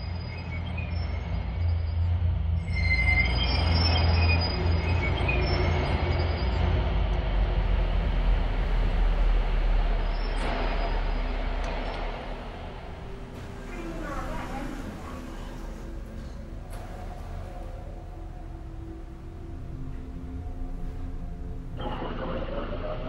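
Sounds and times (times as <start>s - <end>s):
train wheels squealing: 0.0s - 7.0s, 9.9s - 19.4s
train rumble: 1.0s - 23.0s.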